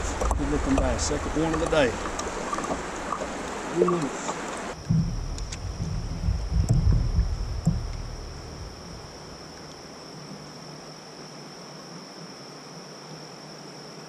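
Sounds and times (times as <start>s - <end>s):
faint hiss: 0.0s - 14.0s
insects droning: 0.0s - 14.0s
low rumble: 4.7s - 9.7s.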